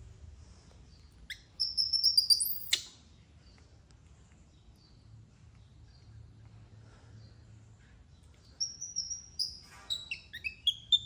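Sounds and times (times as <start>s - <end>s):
high-pitched animal chirps and squeaks: 1.3s - 2.9s, 8.6s - 11.0s.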